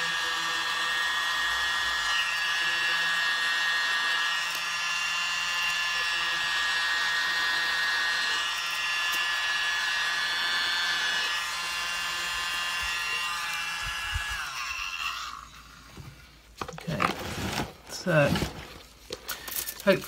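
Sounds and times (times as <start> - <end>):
electric air blower whining: 0.0 - 16.0.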